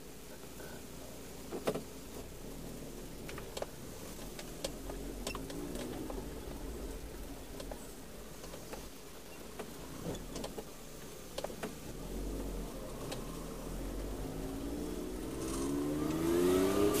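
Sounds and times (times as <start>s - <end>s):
car engine accelerating: 2.5s - 7.9s, 11.8s - 17.0s.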